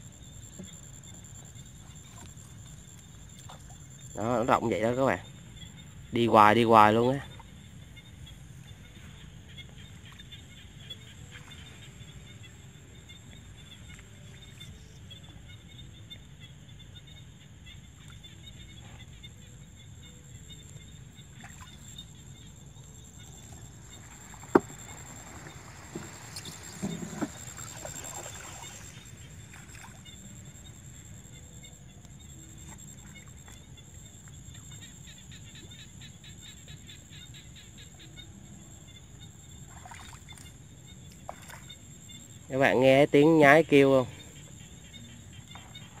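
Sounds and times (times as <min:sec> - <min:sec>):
quiet water sounds: 0:00.0 - 0:46.0
boat knocks: 0:23.4 - 0:29.0.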